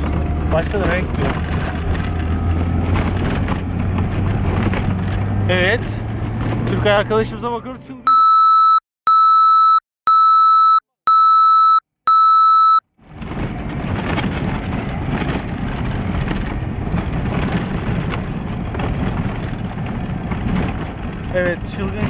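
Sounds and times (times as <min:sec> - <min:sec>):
car driving over rough dirt track: 0:00.0 - 0:07.7, 0:13.0 - 0:22.0
electronic beeps: 0:08.1 - 0:12.8.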